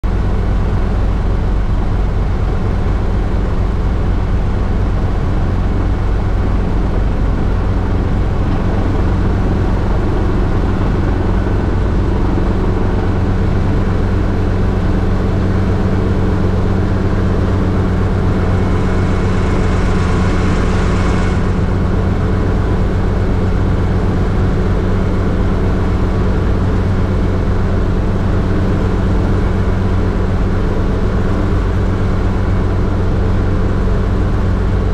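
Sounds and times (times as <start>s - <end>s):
helicopter engine and rotors droning: 0.1s - 34.9s
loud hiss: 18.2s - 21.9s.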